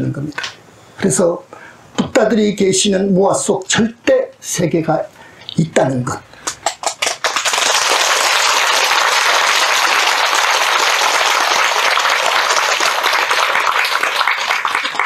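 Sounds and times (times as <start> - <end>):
audience applauding: 6.6 - 15.0.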